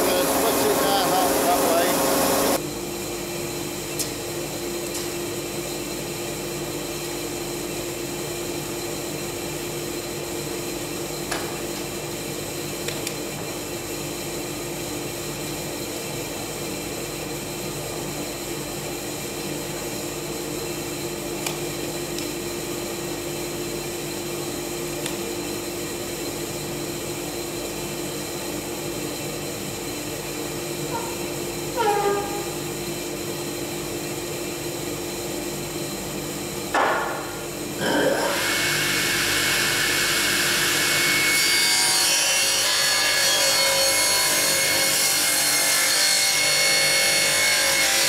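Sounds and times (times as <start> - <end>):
woodworking planer humming: 0.0 - 2.6.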